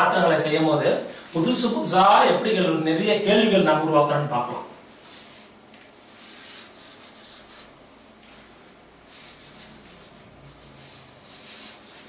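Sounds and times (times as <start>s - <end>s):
eraser rubbing on whiteboard: 6.1s - 12.0s.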